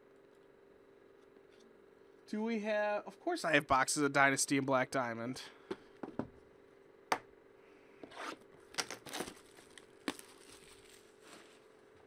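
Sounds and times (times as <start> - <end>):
plastic wrap crinkling and tearing: 8.7 - 11.7
cardboard and paper rustling: 8.8 - 11.7.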